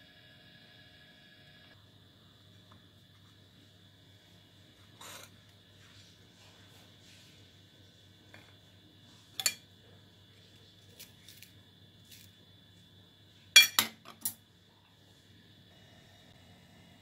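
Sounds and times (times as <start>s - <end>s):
knife clinking on ceramic plate: 9.4s - 9.6s, 13.6s - 14.4s.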